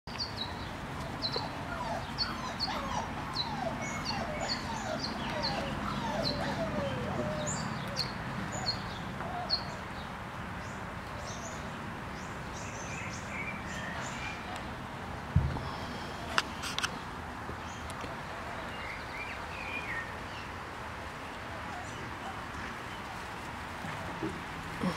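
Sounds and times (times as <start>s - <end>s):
puppies whimpering and squealing: 1.2s - 8.1s.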